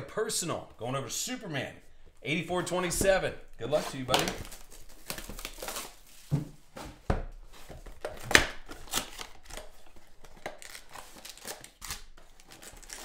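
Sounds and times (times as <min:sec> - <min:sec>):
foil packs crackling: 0:03.6 - 0:06.2, 0:08.6 - 0:13.0
cardboard box tearing: 0:10.4 - 0:13.0.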